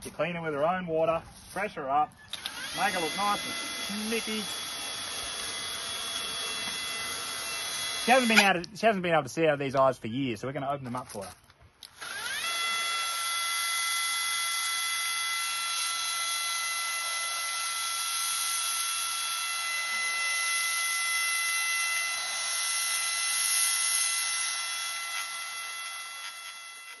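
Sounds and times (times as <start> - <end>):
electric pump motor whining: 2.2 - 8.6, 11.9 - 27.0.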